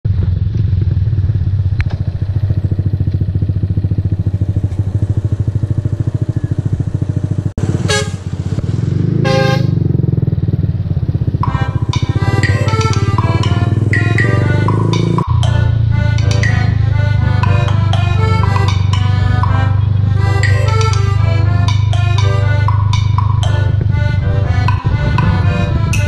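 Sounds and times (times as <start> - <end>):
motorcycle engine running: 0.0 - 26.0
vehicle horn blasts: 7.8 - 8.3, 9.2 - 9.9
background music: 11.4 - 26.0.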